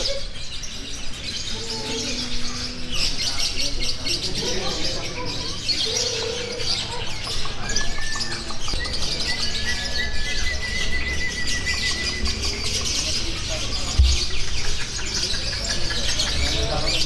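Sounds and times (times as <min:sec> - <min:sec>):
lovebirds chattering: 0:00.0 - 0:17.0
long whistled bird notes: 0:08.7 - 0:12.8.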